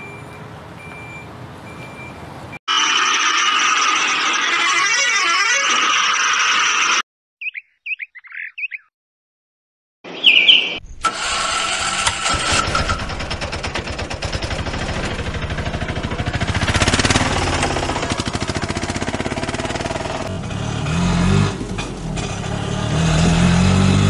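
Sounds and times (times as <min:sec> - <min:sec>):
bird chirps: 0:07.4 - 0:08.9, 0:10.1 - 0:11.0
auto-rickshaw engine putter: 0:11.0 - 0:24.0.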